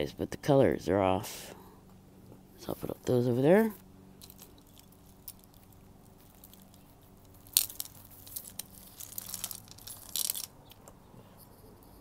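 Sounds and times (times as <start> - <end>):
faint steady hum: 0.0 - 12.0
jewelry clicking and rustling: 4.2 - 11.0.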